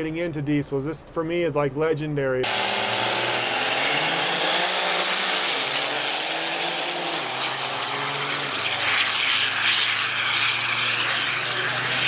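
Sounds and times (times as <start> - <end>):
diesel trucks at full throttle: 2.4 - 12.0.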